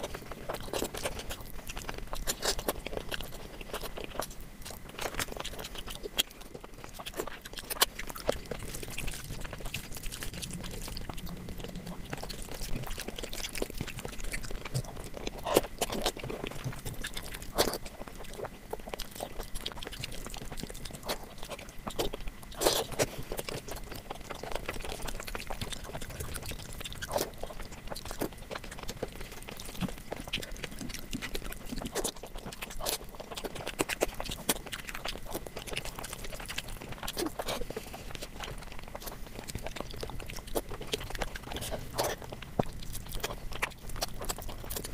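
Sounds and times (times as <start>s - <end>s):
person chewing: 0.0s - 44.9s.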